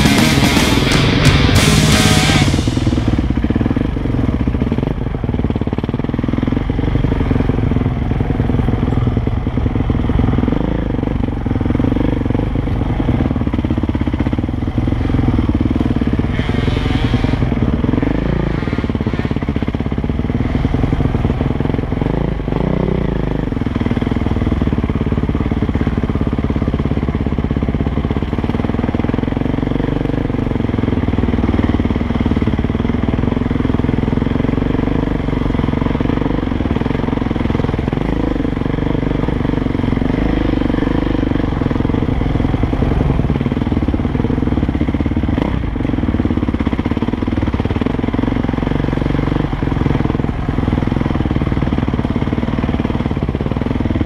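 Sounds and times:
brief rush of noise: 0.0 - 4.1
dirt bike engine running: 0.0 - 54.0.

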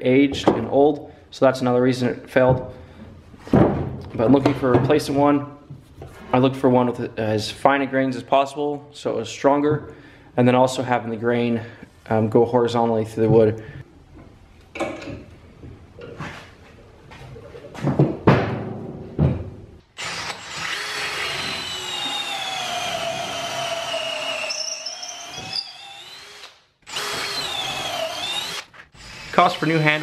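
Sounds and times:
cordless drill boring through wood: 20.0 - 30.0.

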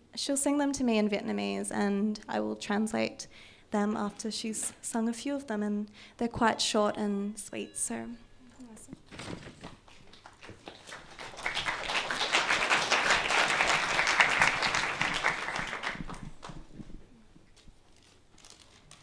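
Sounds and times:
audience applauding: 9.9 - 16.6.

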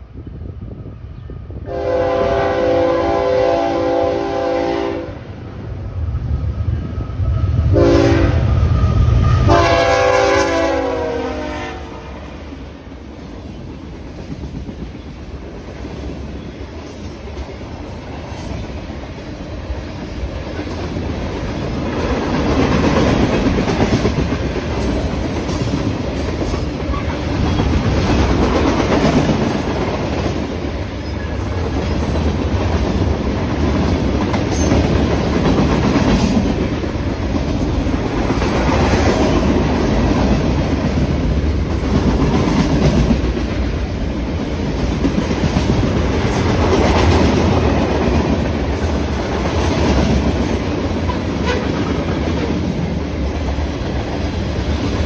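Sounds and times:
freight train wheels clacking: 11.9 - 55.0.

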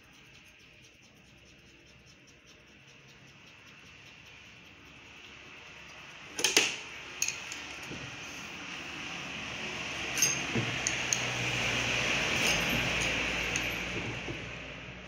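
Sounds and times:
metal tools clinking: 6.4 - 8.0, 10.0 - 11.4, 12.2 - 14.1.

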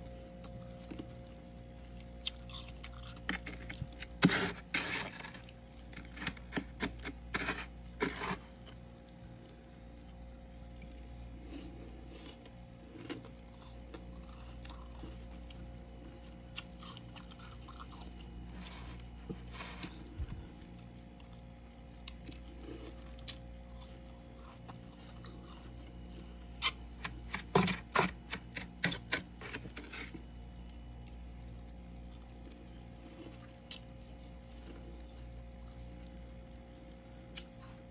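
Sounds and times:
steady low hum: 0.0 - 37.9
frost crunching: 0.4 - 9.3, 10.8 - 30.4.

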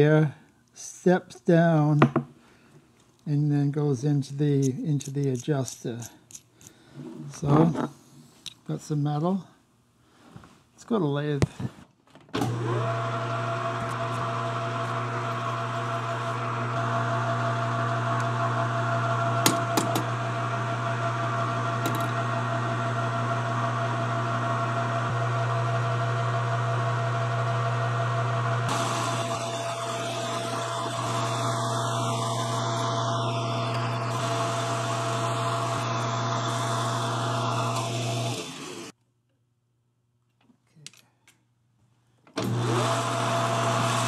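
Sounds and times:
metal lathe motor hum: 12.4 - 38.9, 42.4 - 44.0.

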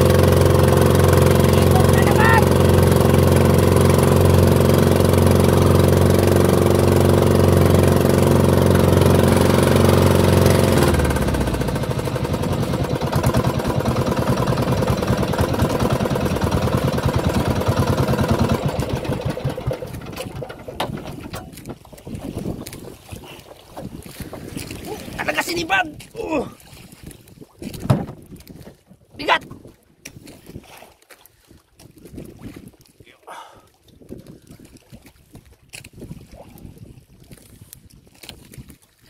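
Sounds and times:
boat engine running: 0.0 - 25.8.

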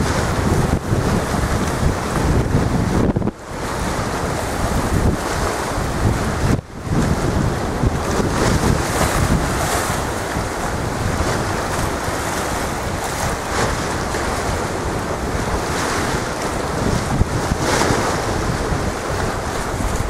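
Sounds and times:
choppy sea waves: 0.0 - 20.0
wind buffeting microphone: 0.0 - 20.0.

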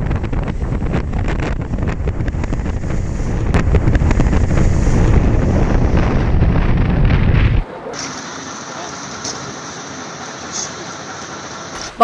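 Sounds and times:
wind buffeting microphone: 0.0 - 7.6.

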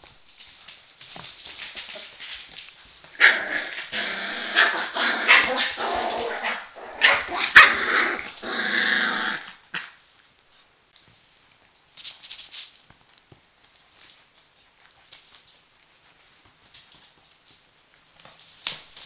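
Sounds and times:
small paws scuffling: 0.0 - 19.0
puppy growling and yapping: 3.1 - 10.0.

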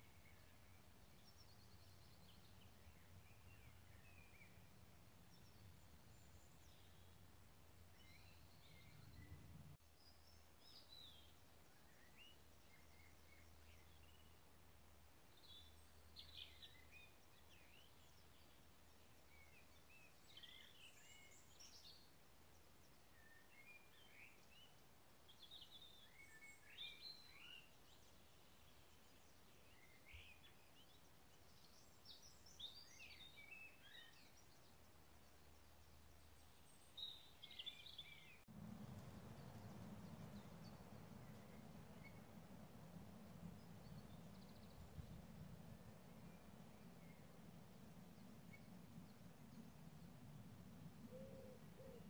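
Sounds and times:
songbirds chirping and trilling: 0.0 - 52.0
steady low rumble: 38.4 - 51.8.

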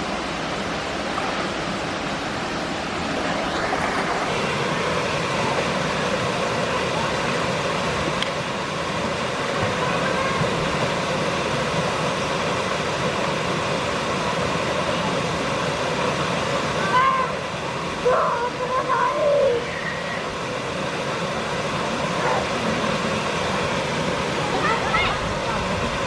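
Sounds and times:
waterfall rushing into pool: 0.0 - 26.0.

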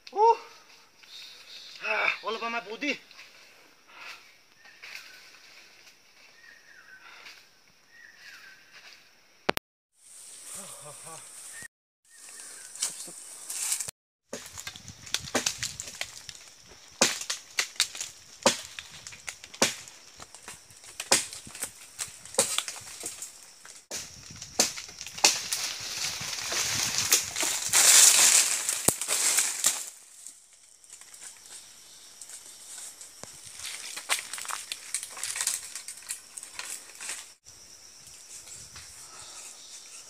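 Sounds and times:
branches and leaves rustling: 0.0 - 9.3, 9.9 - 40.0
twigs cracking: 12.2 - 37.4.

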